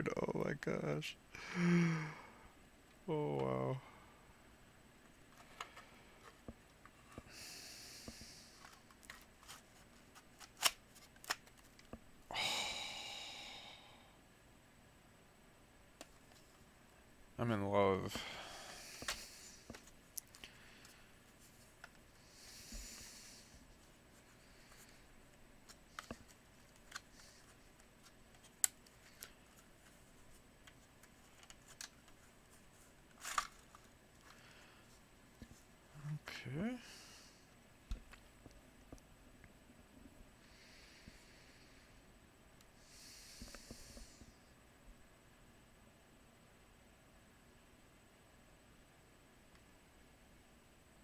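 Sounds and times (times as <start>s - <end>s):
plastic parts clicking and scraping: 8.6s - 12.0s, 25.7s - 30.0s, 33.1s - 34.4s.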